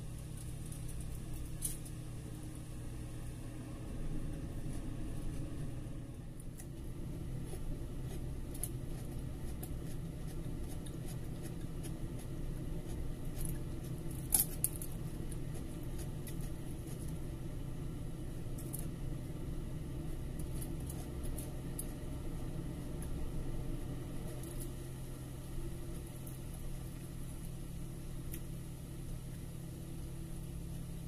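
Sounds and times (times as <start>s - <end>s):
steady low hum: 0.0s - 31.0s
small clicks and crackles: 0.1s - 2.1s, 6.4s - 17.2s, 18.4s - 19.0s, 20.2s - 22.1s, 24.2s - 25.0s, 28.2s - 28.6s
chewing: 6.4s - 17.3s.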